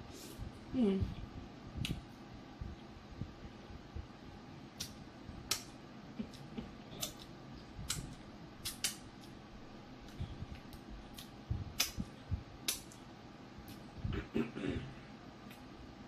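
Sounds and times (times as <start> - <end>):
faint steady hum: 0.0 - 16.0
wet mouth smacks: 4.8 - 5.7, 7.9 - 9.4.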